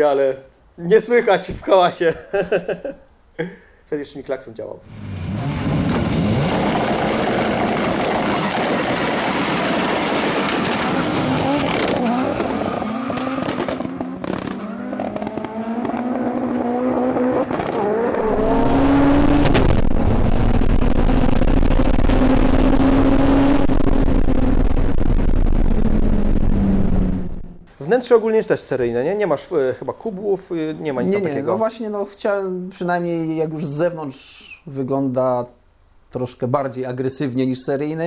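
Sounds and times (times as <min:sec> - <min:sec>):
race cars accelerating hard: 0:04.9 - 0:27.3
engine drone at full throttle: 0:04.9 - 0:27.7.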